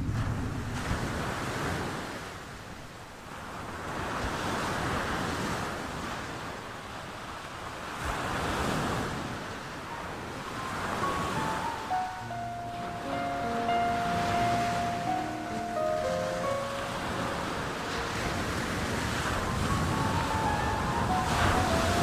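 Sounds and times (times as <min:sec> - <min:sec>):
sea surf washing onto beach: 0:00.0 - 0:22.0.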